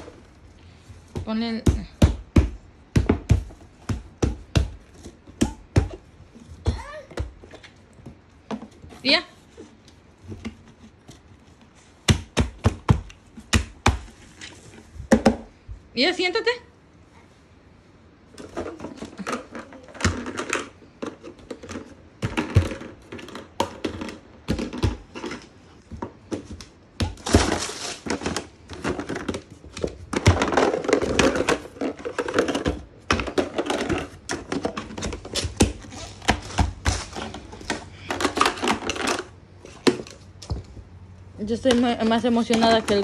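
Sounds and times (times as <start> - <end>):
hollow plastic parts clattering: 18.3 - 40.8, 41.4 - 43.0.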